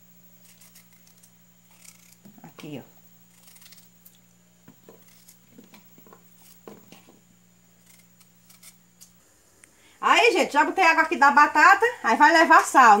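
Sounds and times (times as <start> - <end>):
steady low hum: 0.0 - 13.0
knife cutting potatoes: 0.4 - 9.2.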